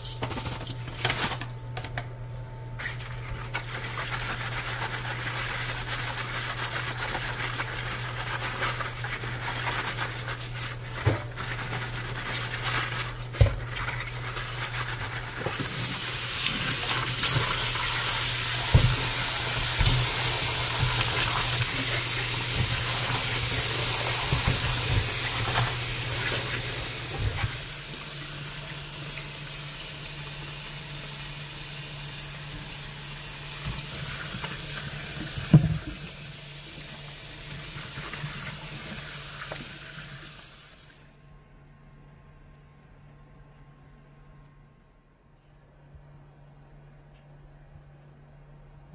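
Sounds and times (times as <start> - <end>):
things clattering in sink: 8.5 - 27.7
tap water running into sink: 15.4 - 32.8, 33.4 - 40.8.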